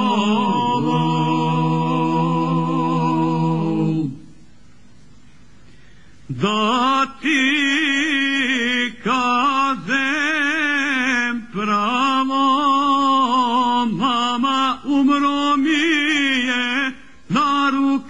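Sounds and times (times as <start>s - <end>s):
singer breathing: 5.3s - 6.3s
man singing folk song: 6.4s - 18.0s.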